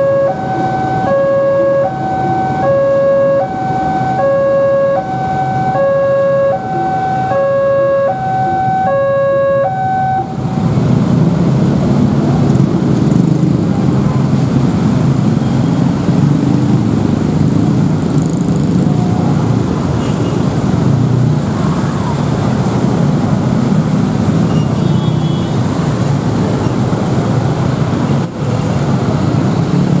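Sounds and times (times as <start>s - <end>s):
level crossing two-tone alarm: 0.0s - 10.4s.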